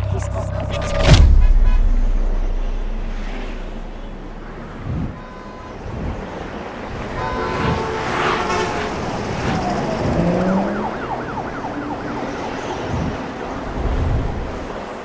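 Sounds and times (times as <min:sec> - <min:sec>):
city traffic: 0:00.0 - 0:15.0
car horns: 0:01.2 - 0:11.7
siren yelping: 0:05.1 - 0:13.8.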